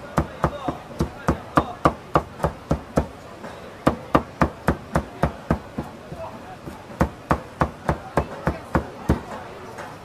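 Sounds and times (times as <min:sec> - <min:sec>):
cleaver chopping meat on wood: 0:00.0 - 0:03.2, 0:03.9 - 0:06.0, 0:06.6 - 0:09.4.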